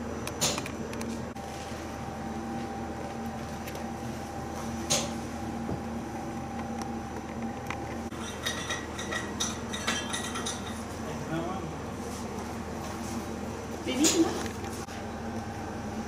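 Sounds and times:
indoor hum: 0:00.0 - 0:16.0.

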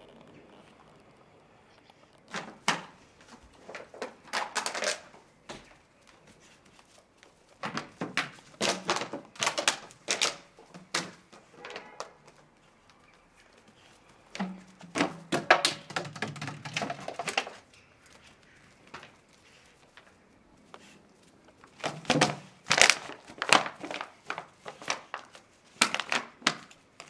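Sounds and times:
plastic bottle crackling and clattering: 0:02.2 - 0:05.8, 0:07.4 - 0:13.2, 0:14.2 - 0:17.8, 0:21.6 - 0:27.0.

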